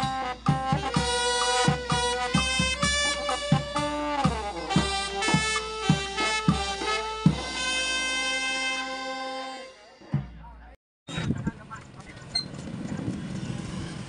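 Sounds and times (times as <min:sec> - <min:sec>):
steady drum beat: 0:00.0 - 0:08.9, 0:10.0 - 0:10.8
brass band playing slow tune: 0:00.0 - 0:10.7.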